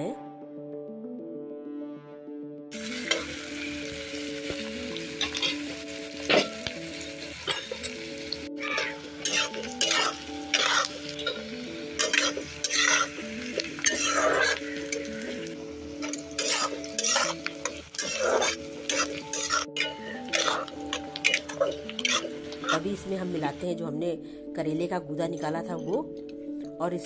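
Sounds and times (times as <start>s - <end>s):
onions sizzling in hot oil: 2.7s - 23.6s
spatula scraping a pan: 5.2s - 6.6s, 8.6s - 22.9s.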